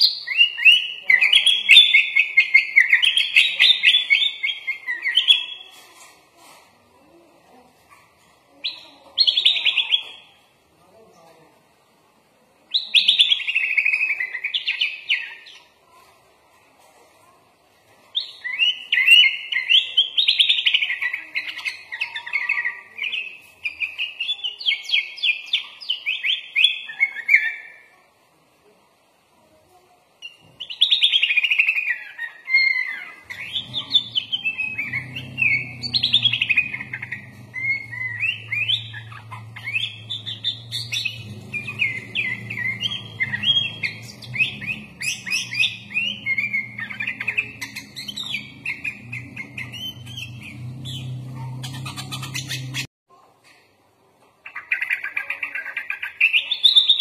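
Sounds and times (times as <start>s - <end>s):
bird singing chirps and trills: 0.0s - 5.8s, 18.2s - 27.9s, 30.2s - 52.9s.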